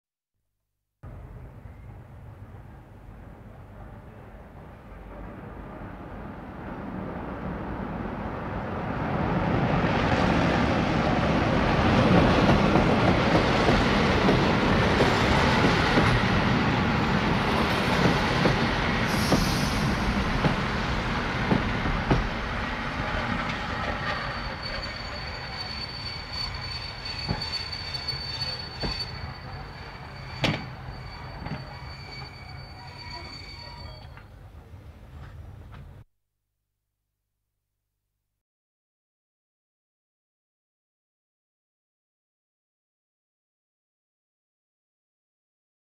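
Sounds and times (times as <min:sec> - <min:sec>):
thin high whine: 0:24.0 - 0:34.3.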